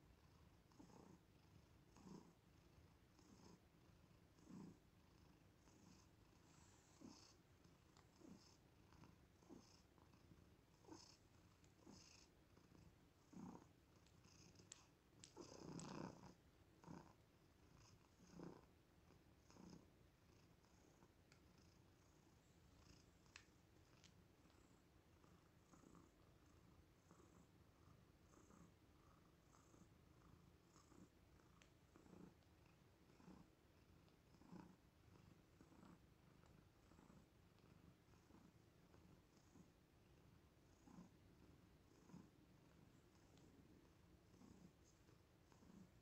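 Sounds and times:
cat purring faintly: 0.0s - 46.0s.

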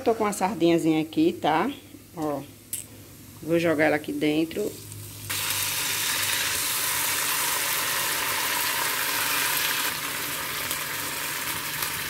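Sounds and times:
fish sizzling in a frying pan: 4.8s - 12.0s.

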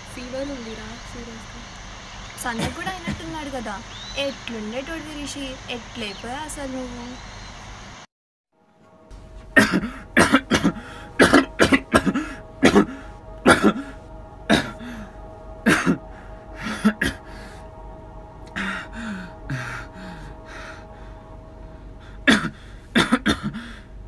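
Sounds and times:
man coughing hard: 9.6s - 14.8s, 15.6s - 16.0s, 22.3s - 23.8s.

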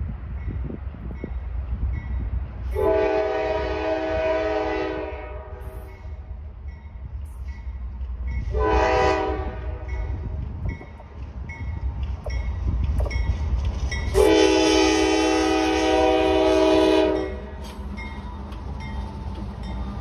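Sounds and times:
locomotive horn blasts: 2.8s - 5.8s, 8.5s - 10.1s, 14.1s - 17.6s.

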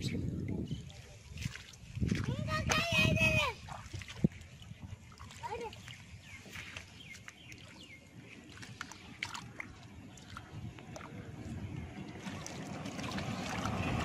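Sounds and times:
hands splashing in muddy water: 1.3s - 2.9s, 3.6s - 14.0s
water dripping: 12.0s - 14.0s.

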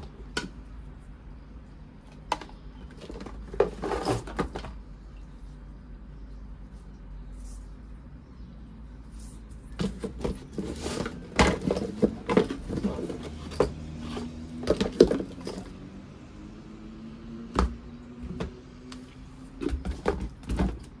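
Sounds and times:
plastic parts knocking and clicking: 9.8s - 13.8s, 14.6s - 15.7s, 19.6s - 21.0s.

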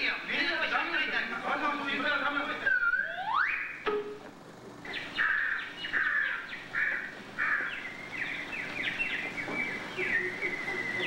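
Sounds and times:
shrill whistle-like chirping notes: 2.6s - 4.2s, 7.9s - 11.0s.

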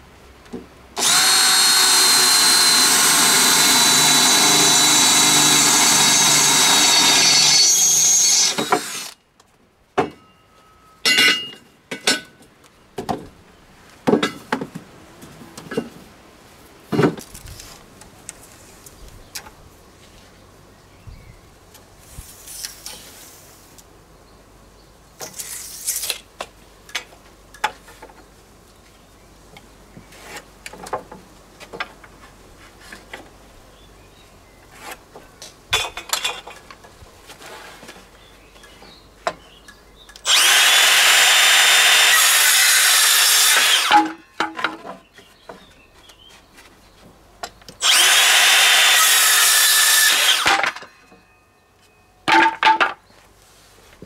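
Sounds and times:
power tool motor whine: 1.0s - 9.2s, 40.2s - 44.0s, 47.8s - 50.6s.

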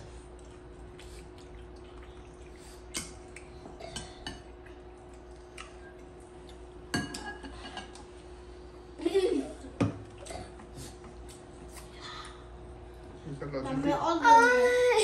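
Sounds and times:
faint steady hum: 0.0s - 15.0s
spoon clinking on ceramic plates: 6.9s - 8.0s.

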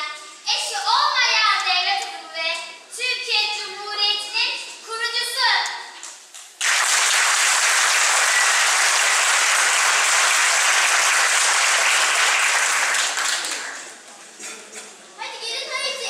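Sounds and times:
audience applauding: 6.6s - 14.1s.

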